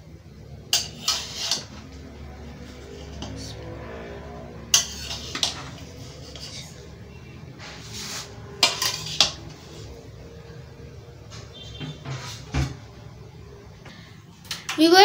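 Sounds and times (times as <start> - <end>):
metal spoon clinking on metal pot: 4.7 - 5.8.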